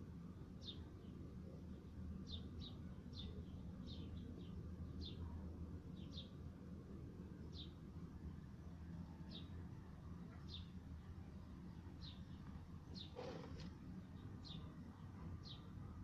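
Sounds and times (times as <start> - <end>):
faint low hum: 0.0 - 16.0
small bird chirping: 0.6 - 6.4, 10.2 - 15.8.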